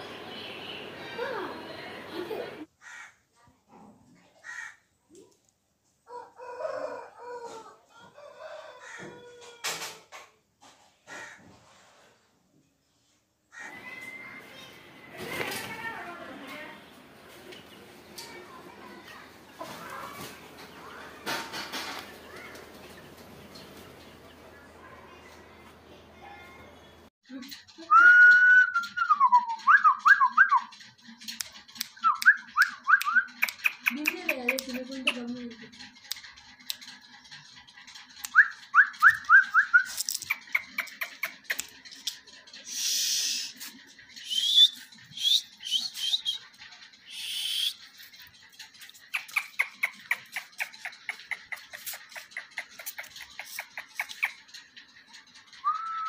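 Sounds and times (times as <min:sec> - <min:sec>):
rooster crowing: 0:06.1 - 0:09.9
sharp clicks: 0:31.2 - 0:35.3, 0:47.0 - 0:56.0.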